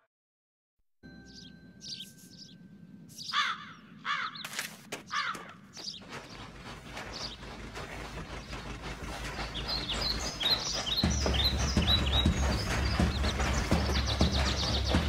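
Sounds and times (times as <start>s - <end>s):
birds chirping: 1.1s - 15.0s
steam locomotive chuffing: 6.1s - 15.0s.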